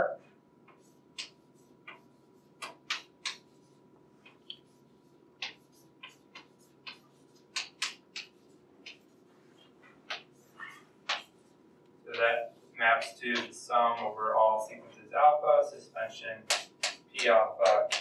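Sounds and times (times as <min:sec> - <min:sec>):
faint room hum: 0:00.0 - 0:18.0
chalk tapping on blackboard: 0:00.6 - 0:14.2, 0:16.4 - 0:18.0.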